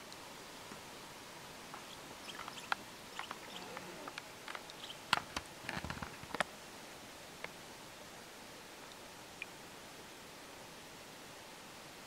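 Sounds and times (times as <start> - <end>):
chipmunk rustling in twigs: 1.7 - 6.4.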